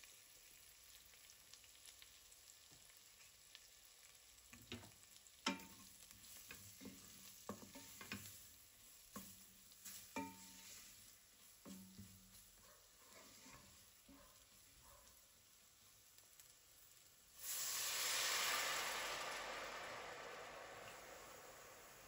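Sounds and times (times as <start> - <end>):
faint sizzle of frying: 0.0 - 22.0
spoon knocking against pot: 10.2 - 10.5.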